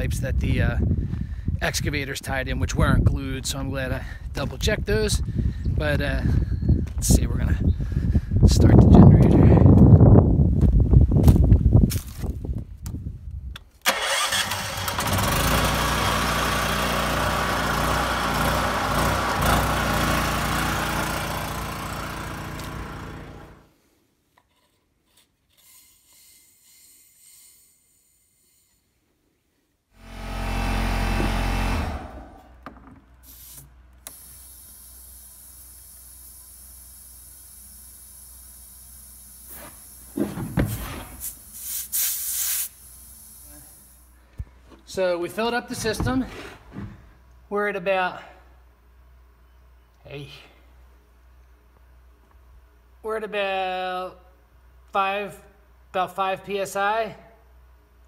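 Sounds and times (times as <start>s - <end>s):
generator engine running: 13.9s - 23.7s, 30.0s - 32.7s
faint steady hiss: 33.2s - 40.2s, 40.9s - 44.2s.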